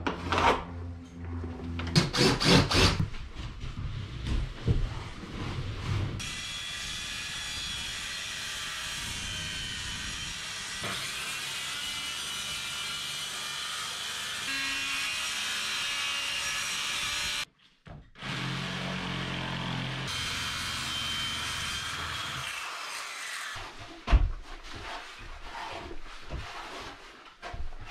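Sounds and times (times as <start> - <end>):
jigsaw cutting: 1.9 - 3.0, 18.2 - 23.6
circular saw cutting board: 18.2 - 23.8.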